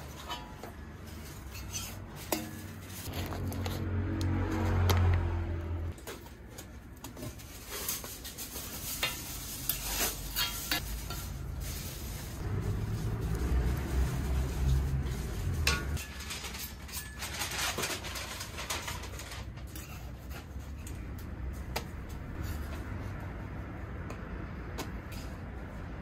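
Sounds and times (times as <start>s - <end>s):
metal spatula scraping on griddle: 0.0s - 3.4s, 7.6s - 12.0s.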